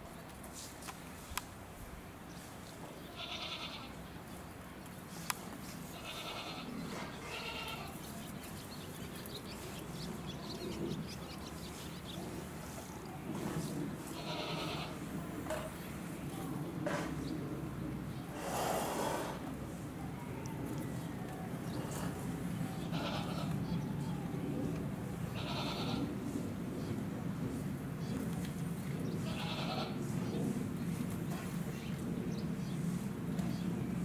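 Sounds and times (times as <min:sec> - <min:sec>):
bleating animal calls: 0:03.1 - 0:03.9, 0:06.0 - 0:08.0, 0:22.8 - 0:23.6, 0:25.3 - 0:26.1.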